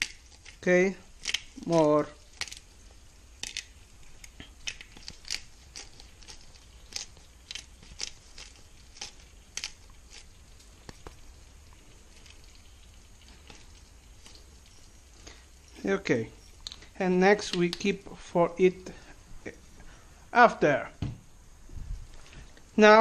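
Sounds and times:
pepper grinder crunching: 0.0 - 18.1.

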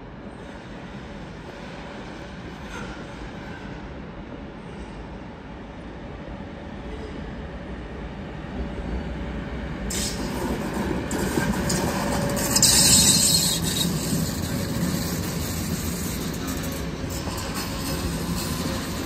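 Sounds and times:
train rumbling: 0.0 - 19.0
high wheel squeal: 9.9 - 19.0.

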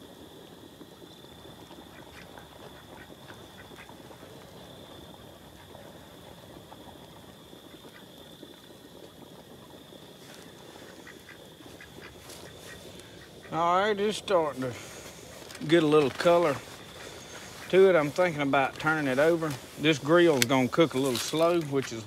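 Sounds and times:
small pops and crackles: 0.2 - 22.0
meat sizzling on a grill: 6.4 - 22.0.

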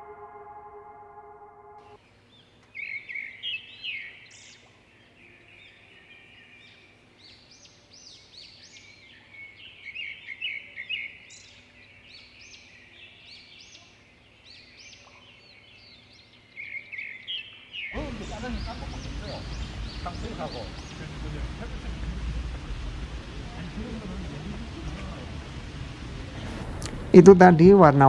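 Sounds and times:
faint outdoor background noise: 0.0 - 28.0
songbirds chirping: 1.8 - 28.0.

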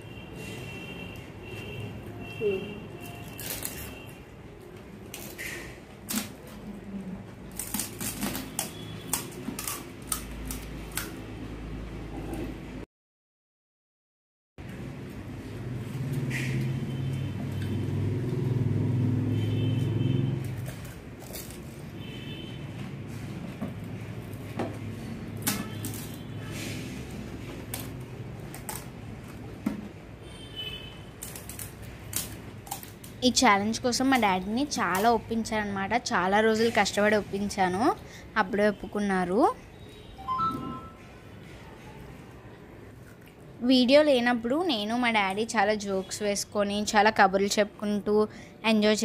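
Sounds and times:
crisp shells cracking and crunching: 3.0 - 4.1, 7.4 - 11.2, 20.4 - 22.0, 31.1 - 33.2
crisp shells cracking: 20.5 - 21.8, 31.2 - 33.2.

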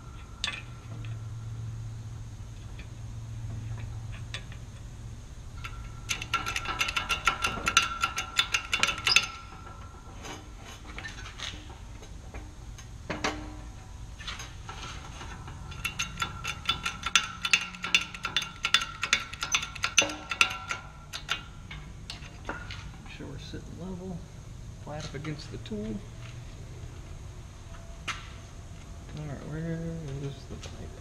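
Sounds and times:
ratchet wrench clicking: 5.5 - 11.7, 14.2 - 22.8.

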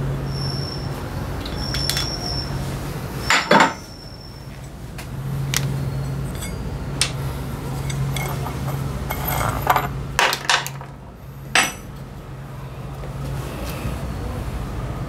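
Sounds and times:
metal tools clinking and knocking: 1.4 - 2.3, 3.3 - 3.9, 5.5 - 11.9.

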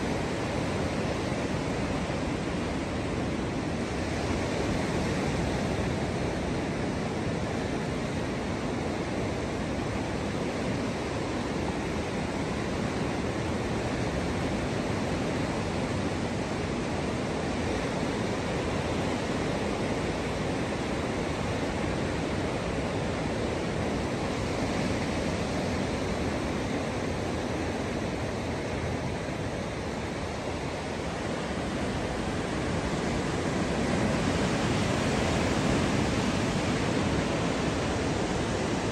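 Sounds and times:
ocean surf breaking: 10.8 - 38.9.

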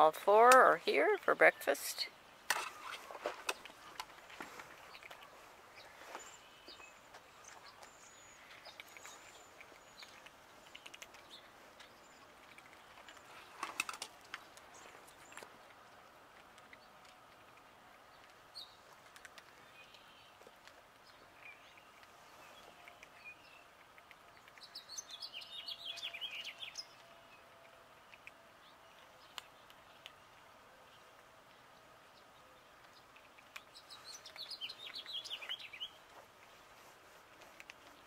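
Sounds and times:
songbird singing high notes: 24.8 - 27.0.

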